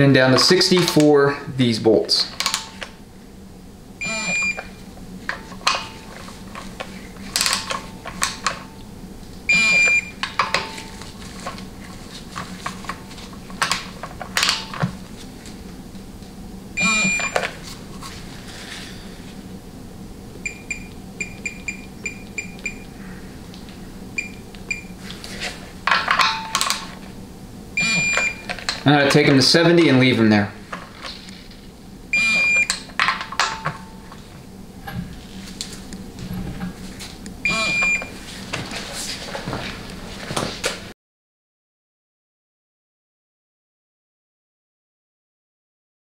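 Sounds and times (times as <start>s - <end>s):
short beeps: 4.0s - 4.6s, 9.5s - 10.1s, 16.8s - 17.4s, 27.8s - 28.5s, 32.2s - 32.7s, 37.5s - 38.1s
long electronic beep: 4.0s - 4.7s, 9.5s - 10.2s, 16.8s - 17.4s, 20.4s - 22.9s, 27.8s - 28.5s, 32.2s - 32.7s, 37.5s - 38.1s.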